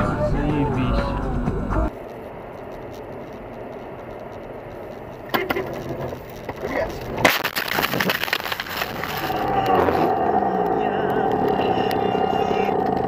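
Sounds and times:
road and engine noise: 0.0s - 13.0s
crunching and rattling: 1.9s - 11.7s.

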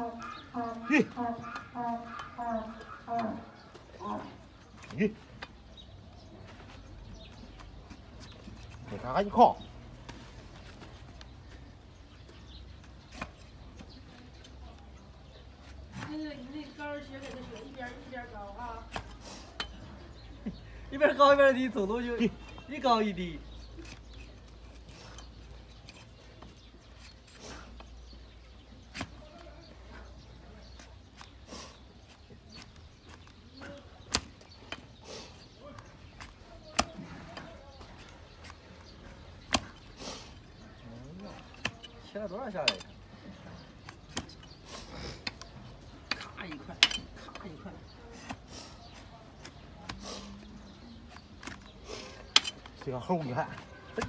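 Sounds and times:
hoof horn cracking: 51.0s - 54.0s.

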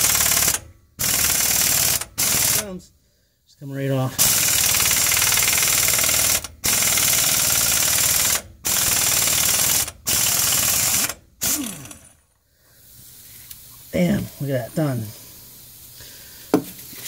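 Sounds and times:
air impact wrench hammering: 0.0s - 2.7s, 4.2s - 12.1s, 16.5s - 16.8s.

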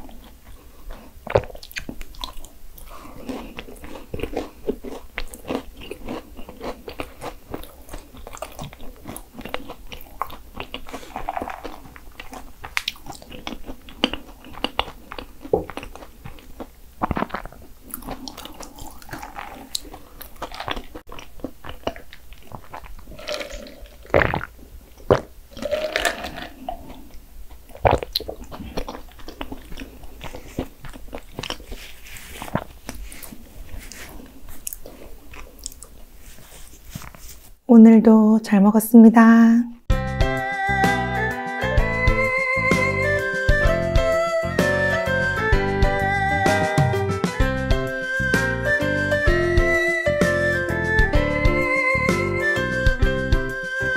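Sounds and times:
chewing: 0.0s - 37.2s
crunching flaky pastry: 0.0s - 37.6s.

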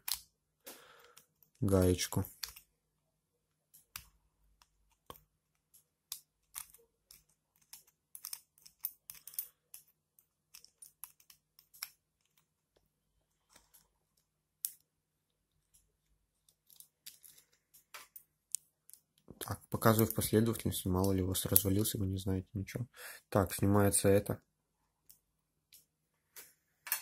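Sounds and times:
small metal tool clicks and scratches: 0.0s - 0.3s, 2.3s - 2.7s, 3.7s - 12.5s.

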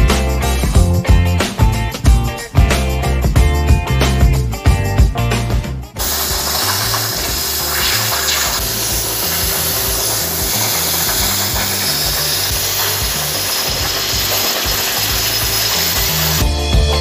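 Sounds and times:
background music with bass: 0.0s - 17.0s
power tool hissing: 6.0s - 16.4s.

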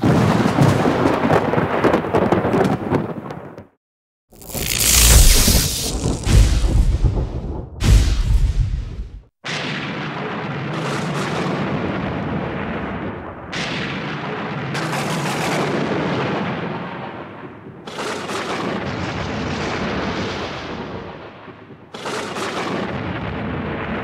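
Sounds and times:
thunder cracks: 0.0s - 3.5s, 4.6s - 17.8s.

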